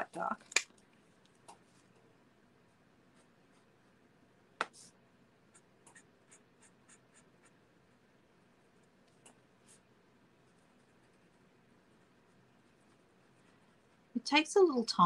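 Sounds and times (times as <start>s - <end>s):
marker scratching on card: 5.9s - 7.6s.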